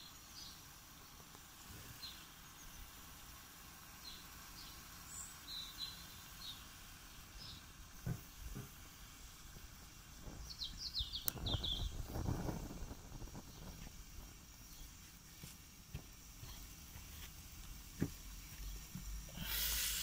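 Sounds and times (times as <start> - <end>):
small birds chirping: 0.0 - 20.0
low rumbling: 9.2 - 14.5.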